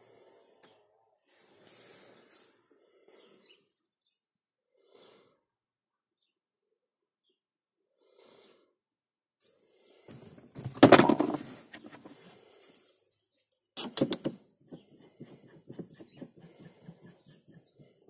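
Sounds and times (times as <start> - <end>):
gear knob handling knocks and clicks: 13.8 - 14.4.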